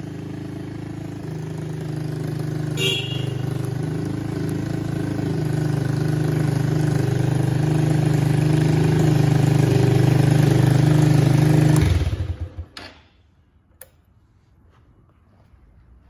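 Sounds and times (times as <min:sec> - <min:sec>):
motorcycle engine idling: 0:00.0 - 0:12.8.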